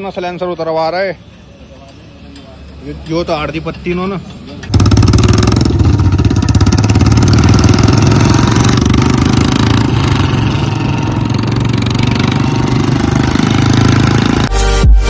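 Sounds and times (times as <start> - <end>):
motorcycle engine thumping loudly: 4.7 - 14.4.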